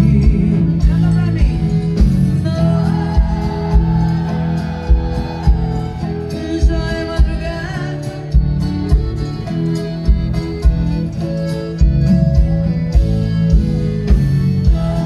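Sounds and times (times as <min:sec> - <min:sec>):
person singing: 0:00.0 - 0:08.4
accordion: 0:00.0 - 0:15.0
acoustic guitar: 0:00.0 - 0:15.0
bass guitar: 0:00.0 - 0:15.0.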